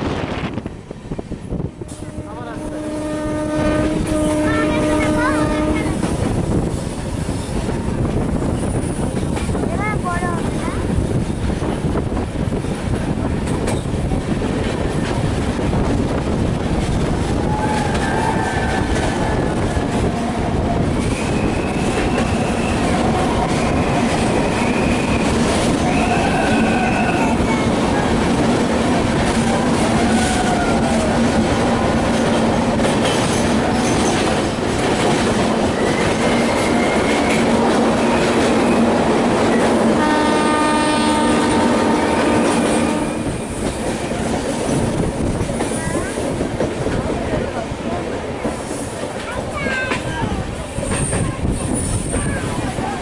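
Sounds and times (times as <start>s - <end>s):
train wheels rumbling in tunnel: 0.0s - 53.0s
train horn: 1.8s - 6.1s, 25.8s - 27.6s, 29.5s - 31.1s, 39.9s - 43.5s
high wheel squeals: 35.7s - 37.4s.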